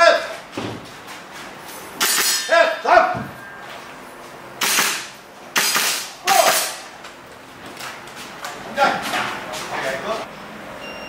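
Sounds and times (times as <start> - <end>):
airsoft rifle shots: 2.0 - 2.6, 4.6 - 6.8.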